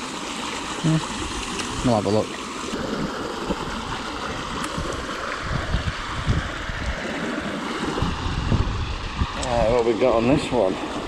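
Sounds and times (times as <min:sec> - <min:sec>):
river water rushing: 0:00.0 - 0:11.0.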